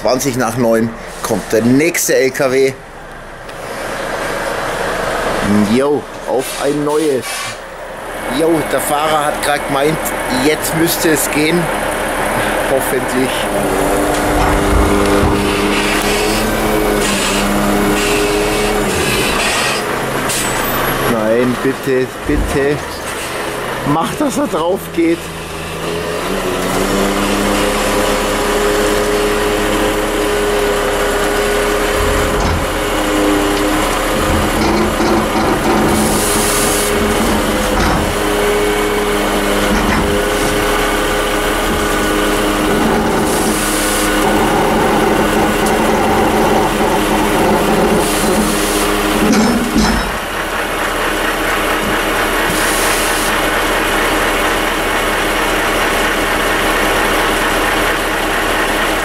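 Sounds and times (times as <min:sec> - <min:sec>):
diesel engine at steady revs: 0:00.0 - 0:59.0
metal creaking and grinding: 0:05.4 - 0:53.4
loud knock: 0:31.9 - 0:33.0
hydraulic hiss bursts: 0:35.9 - 0:37.7, 0:43.3 - 0:44.3, 0:52.5 - 0:53.4.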